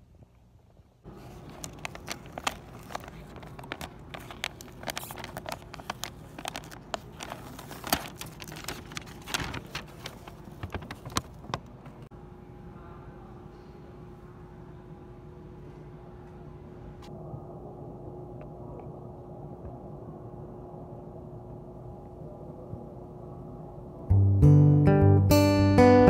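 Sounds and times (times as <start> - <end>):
steady low hum: 0.0 - 25.5
paper bag crinkling and rustling: 1.1 - 12.1.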